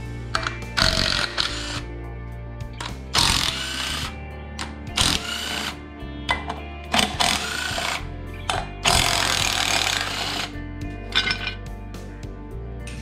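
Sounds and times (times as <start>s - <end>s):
background music: 0.0s - 13.0s
impact driver bursts: 0.8s - 1.9s, 3.2s - 5.8s, 7.0s - 10.5s.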